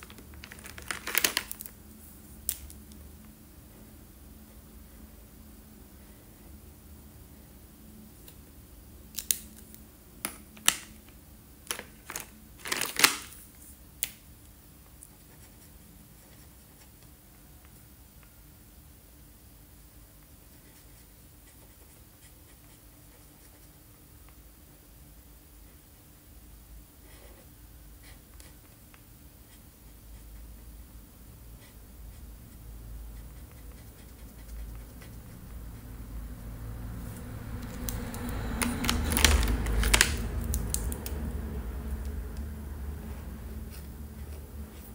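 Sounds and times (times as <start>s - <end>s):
low steady hum: 0.0s - 44.9s
marker rubbing on paper: 31.6s - 35.9s.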